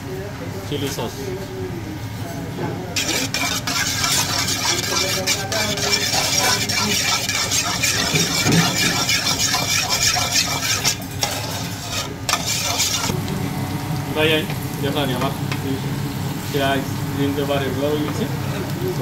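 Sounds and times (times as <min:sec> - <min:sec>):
metal spoon stirring in metal bowl: 0:03.0 - 0:13.2.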